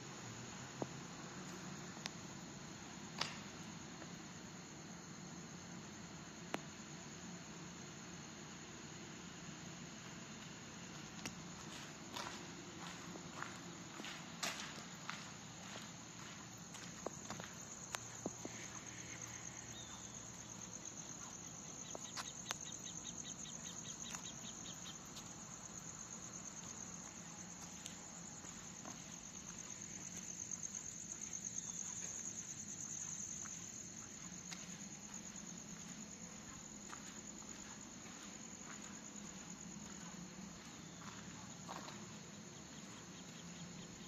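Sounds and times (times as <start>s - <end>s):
night insects chirring: 0.0s - 44.0s
fast ticking insect call: 11.0s - 44.0s.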